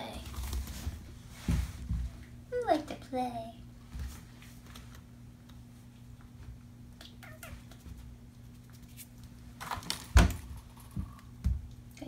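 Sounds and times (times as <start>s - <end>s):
kitten mewing: 7.0s - 7.8s.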